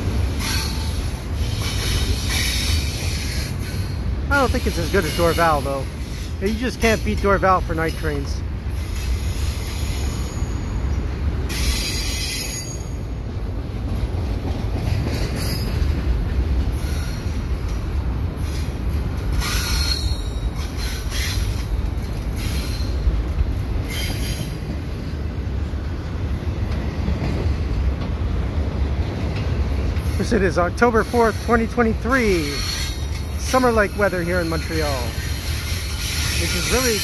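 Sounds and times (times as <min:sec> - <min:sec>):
freight train wheels rumbling: 0:00.0 - 0:37.0
high-pitched wheel squeals: 0:11.5 - 0:13.0, 0:15.2 - 0:15.9, 0:19.4 - 0:23.1.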